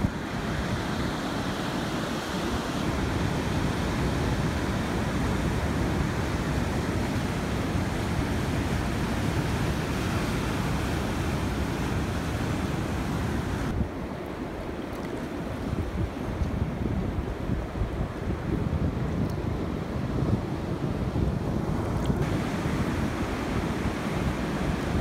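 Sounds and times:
wind noise on microphone: 0:00.0 - 0:25.0.

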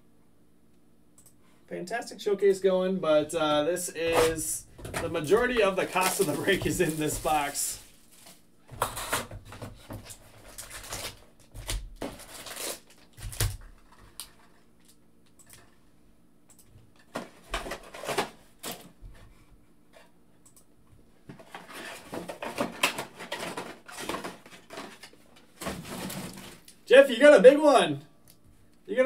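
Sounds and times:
foil wrappers crinkling: 0:04.3 - 0:08.5, 0:10.1 - 0:14.6.

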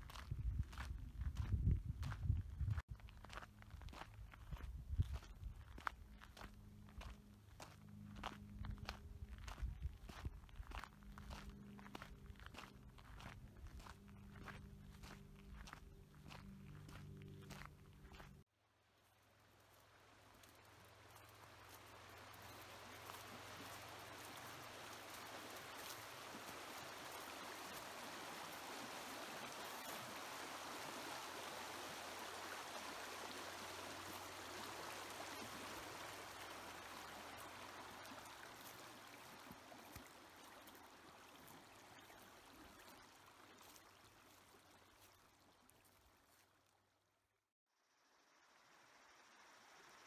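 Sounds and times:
river rushing over rocks: 0:22.0 - 0:41.0.

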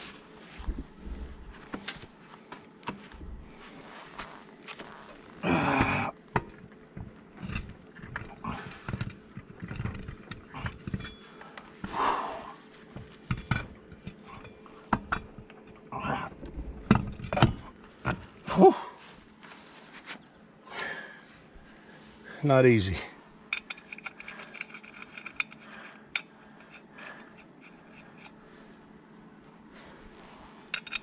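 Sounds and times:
man grunting and breathing hard: 0:05.4 - 0:06.2, 0:11.9 - 0:12.6, 0:18.4 - 0:19.0
metallic clicks and knocks: 0:13.0 - 0:15.8.

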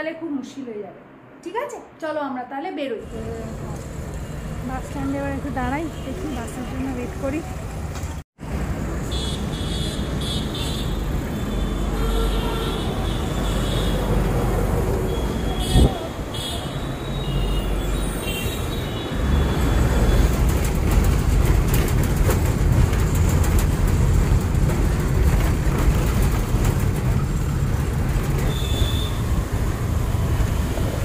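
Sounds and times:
street traffic: 0:02.9 - 0:31.0
bus engine rumble: 0:03.0 - 0:31.0
rattles: 0:20.1 - 0:28.8.

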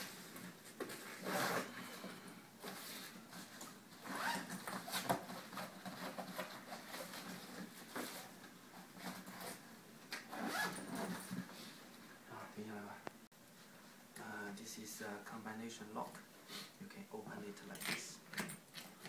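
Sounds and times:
suitcase zipper being pulled: 0:01.2 - 0:01.7, 0:04.0 - 0:04.6, 0:10.3 - 0:11.3.

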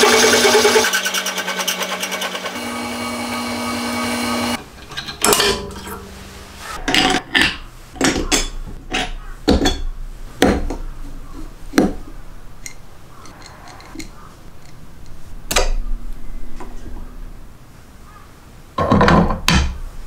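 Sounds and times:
metal tools clinking: 0:04.6 - 0:06.1.

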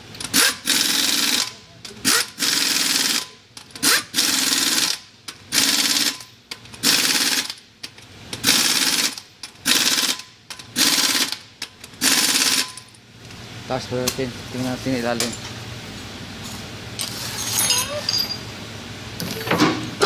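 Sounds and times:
pneumatic impact wrench hammering: 0:00.2 - 0:07.6, 0:08.4 - 0:12.9.

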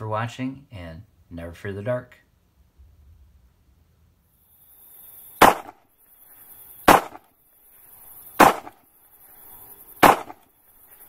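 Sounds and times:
sharp crack-like hit: 0:05.4 - 0:05.8, 0:06.9 - 0:07.3, 0:08.4 - 0:08.8, 0:10.0 - 0:10.5.

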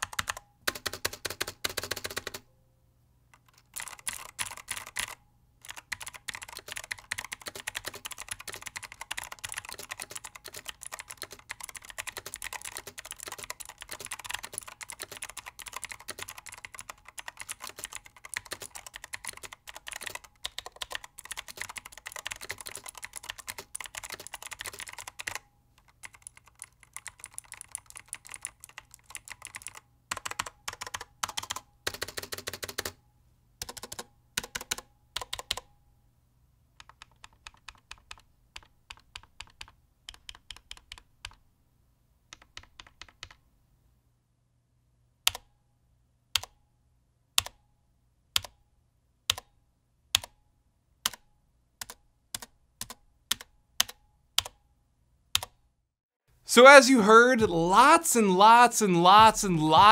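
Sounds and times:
clicky mechanical keyboard typing: 0:00.0 - 0:02.4, 0:03.4 - 0:33.0, 0:33.6 - 0:35.7, 0:36.8 - 0:41.4, 0:42.3 - 0:43.4, 0:51.8 - 0:54.6, 0:55.4 - 0:55.6.

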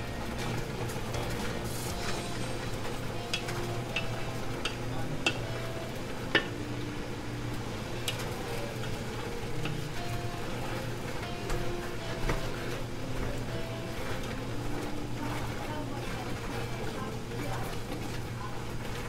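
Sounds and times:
sizzle: 0:00.0 - 0:19.0
spatula stirring noodles: 0:00.3 - 0:06.6, 0:07.5 - 0:19.0.

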